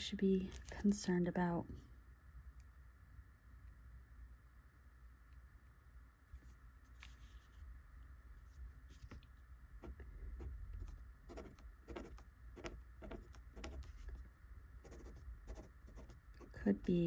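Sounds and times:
pen nib scratching paper: 0:09.8 - 0:14.2, 0:14.8 - 0:17.0.

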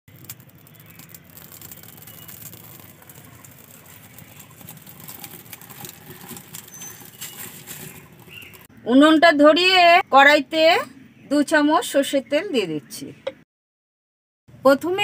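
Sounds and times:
firewood crackling: 0:00.1 - 0:08.7.

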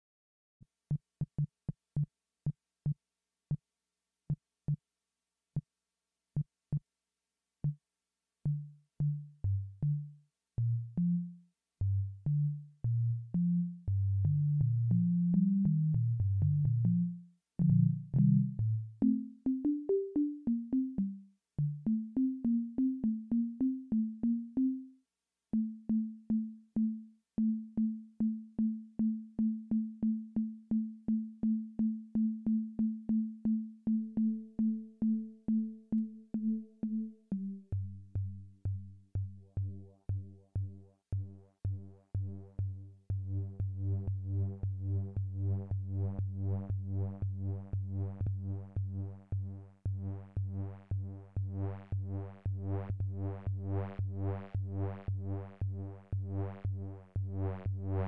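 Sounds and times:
synthesizer bass line: 0:39.2 - 0:58.0.

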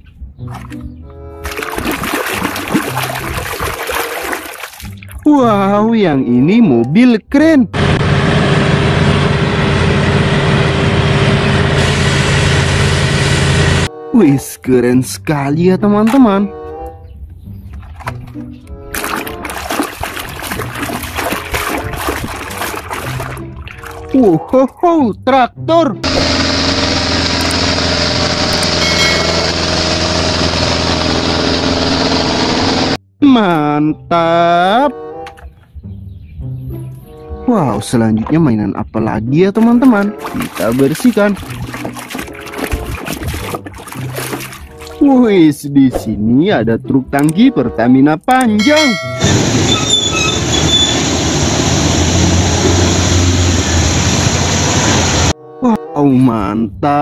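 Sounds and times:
diesel farm machinery droning: 0:07.6 - 0:13.9, 0:26.0 - 0:33.0, 0:48.6 - 0:55.3
truck engine rumble: 0:07.6 - 0:13.9, 0:26.0 - 0:33.0, 0:48.6 - 0:55.4
faint short high tones: 0:28.8 - 0:29.6
tyres hissing on wet road: 0:49.6 - 0:55.3.

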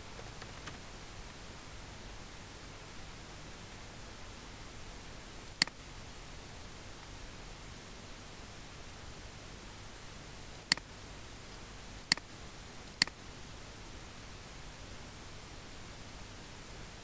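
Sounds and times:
low hiss: 0:00.0 - 0:17.0
computer mouse clicks: 0:12.9 - 0:13.2.

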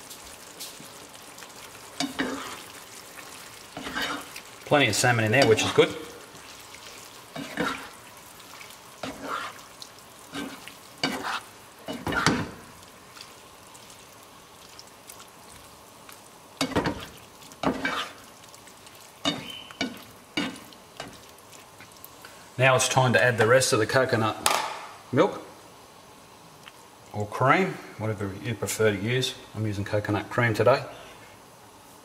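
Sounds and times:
faint steady hiss: 0:00.0 - 0:32.0
spatula scraping a frying pan: 0:01.9 - 0:02.8, 0:03.5 - 0:04.6, 0:05.2 - 0:12.6, 0:16.6 - 0:18.3, 0:19.2 - 0:21.2.

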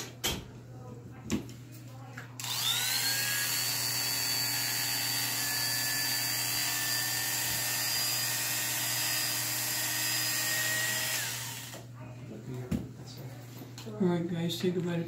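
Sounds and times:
electric clippers buzzing: 0:02.4 - 0:11.9.

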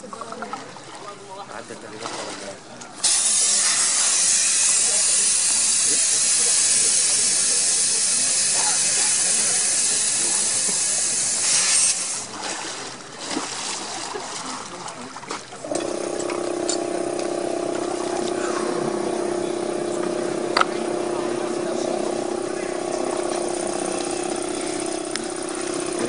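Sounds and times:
steady hiss: 0:03.1 - 0:12.3
machine hum with pitched tones: 0:15.6 - 0:26.0.

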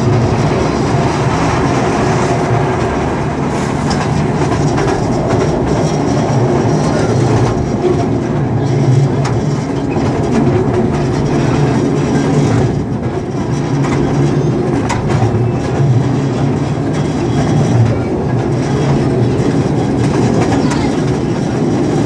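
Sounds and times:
train rumbling on track: 0:00.0 - 0:22.0.

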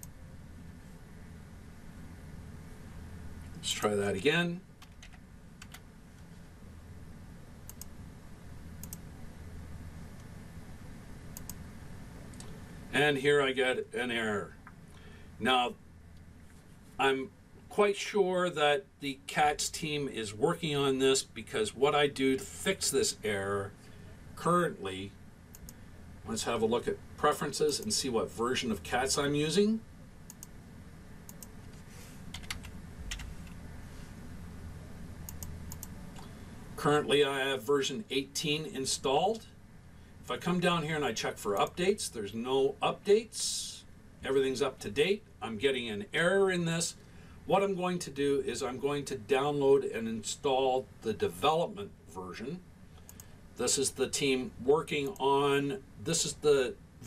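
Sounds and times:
low steady hum: 0:00.0 - 0:57.0
computer keyboard keystrokes: 0:04.8 - 0:05.8, 0:32.3 - 0:33.3
computer mouse clicking: 0:04.8 - 0:05.8, 0:07.7 - 0:07.9, 0:08.8 - 0:09.0, 0:11.3 - 0:11.6, 0:25.5 - 0:25.8, 0:30.3 - 0:30.5, 0:31.3 - 0:33.6, 0:35.2 - 0:36.3
mouse clicks: 0:30.3 - 0:30.5, 0:35.3 - 0:36.3.

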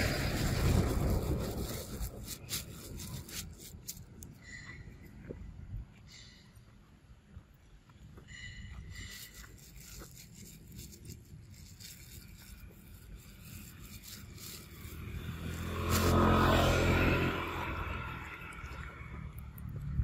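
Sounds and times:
vehicle engine passing by: 0:00.0 - 0:03.4, 0:12.9 - 0:20.0.

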